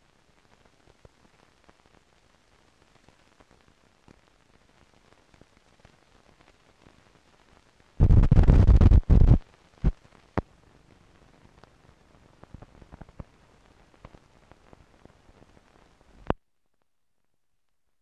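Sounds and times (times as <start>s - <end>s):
faint film crackle: 0.0s - 18.0s
loud rumbling burst of noise: 8.0s - 9.4s
sharp pops: 8.0s - 10.0s.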